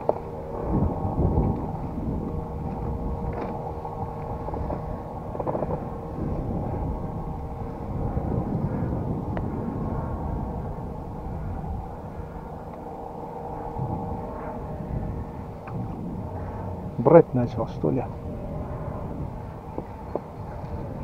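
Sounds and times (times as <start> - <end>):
faint hum: 0.0 - 21.0
wind rumbling on microphone: 0.0 - 21.0.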